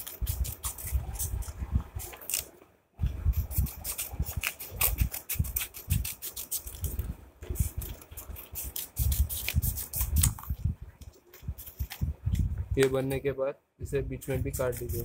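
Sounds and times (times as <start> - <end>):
scissors snipping paper: 0.0 - 2.6, 3.3 - 12.1, 14.5 - 15.0.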